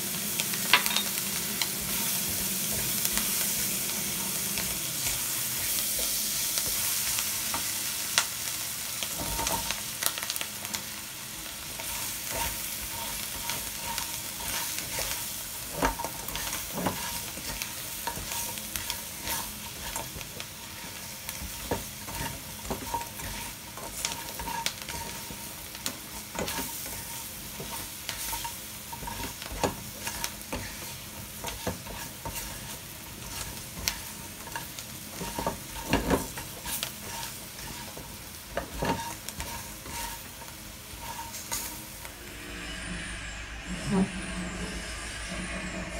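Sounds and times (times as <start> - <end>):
food sizzling in oil: 0.0 - 42.6
spatula scraping pan: 11.6 - 42.7.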